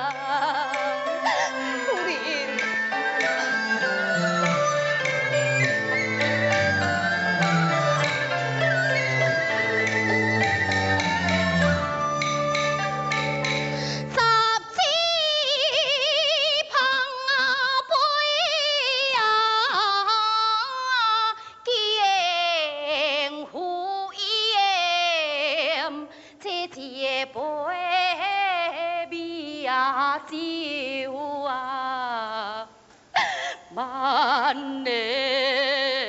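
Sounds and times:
woman singing opera: 0.0 - 4.7, 13.8 - 36.0.

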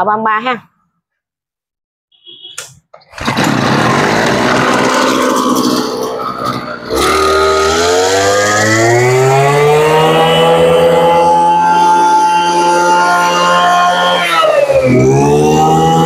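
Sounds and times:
brush cutter engine revving: 3.2 - 16.0.

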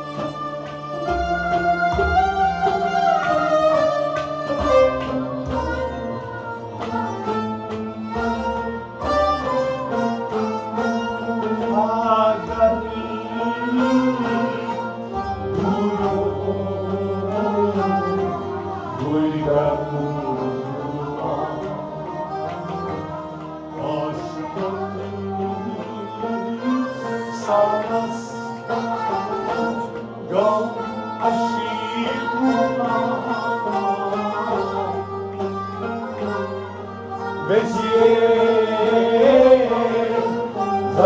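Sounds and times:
bowed fiddles: 0.0 - 41.0
harmonium: 0.0 - 41.0
person singing: 10.8 - 41.0.

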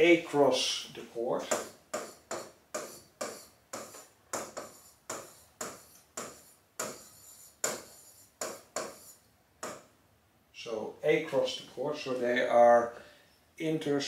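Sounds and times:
pen tapping on glass screen: 1.5 - 9.9.

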